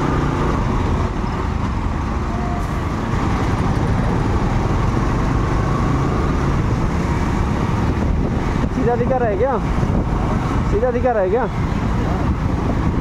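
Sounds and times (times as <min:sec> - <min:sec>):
low rumble of road and traffic: 0:00.0 - 0:13.0.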